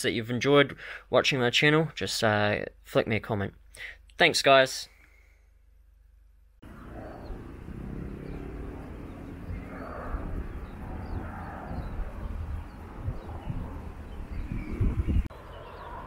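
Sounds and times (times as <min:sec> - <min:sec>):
steady low rumble: 0:06.6 - 0:16.0.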